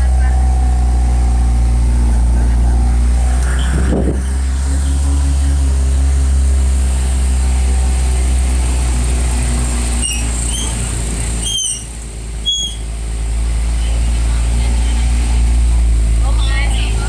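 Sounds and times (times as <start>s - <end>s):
road rumble: 0.0s - 17.0s
vehicle engine hum: 0.0s - 17.0s
high-pitched squeaks: 9.9s - 12.9s.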